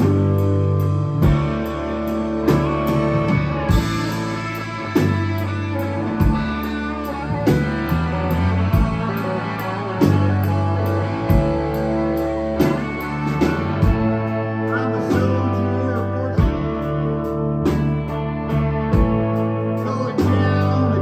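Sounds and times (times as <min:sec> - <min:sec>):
drum kit hits: 0:00.0 - 0:15.6
bass guitar: 0:00.0 - 0:21.0
electric guitars: 0:00.0 - 0:21.0.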